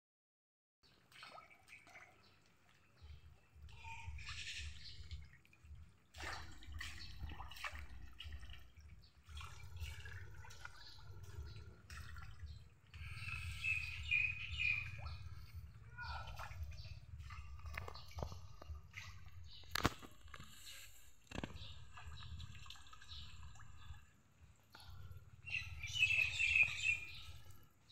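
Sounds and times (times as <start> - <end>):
water dripping and slapping: 0.8 - 25.0
fish splashing in water: 4.1 - 15.5
steady low rumble: 8.3 - 22.6.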